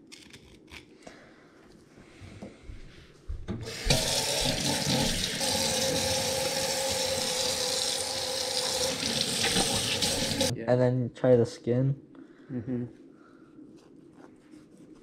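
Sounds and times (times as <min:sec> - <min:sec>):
faucet turning on: 0:03.6 - 0:10.5
water running into metal sink: 0:03.6 - 0:10.5.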